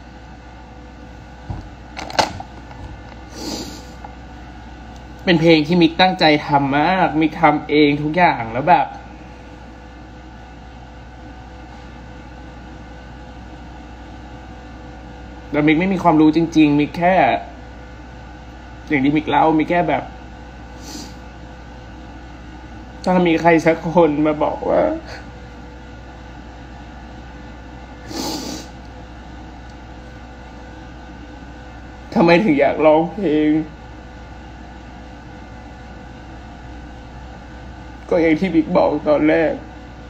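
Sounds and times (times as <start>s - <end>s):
low constant hum: 0.0s - 40.0s
room tone hiss: 3.0s - 40.0s
woman sniffing: 3.2s - 4.1s, 20.8s - 21.2s, 28.0s - 28.8s.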